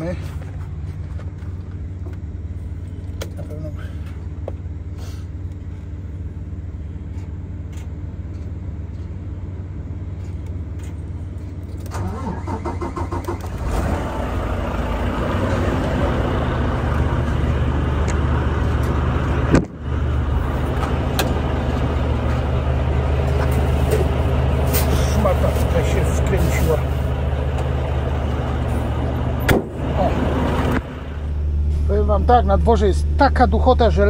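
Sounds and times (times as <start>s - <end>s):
diesel engine idling: 0.0s - 34.0s
low hum: 0.0s - 34.0s
diesel engine starter cranking: 11.6s - 32.1s
sharp knock: 29.5s - 29.8s.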